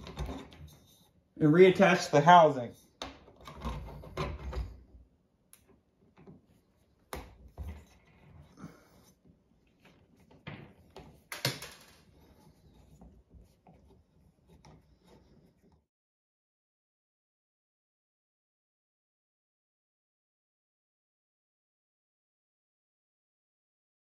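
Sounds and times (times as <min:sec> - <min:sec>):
clicks scrapes and knocks of handling: 0:00.0 - 0:01.2, 0:02.7 - 0:04.9, 0:05.6 - 0:15.9.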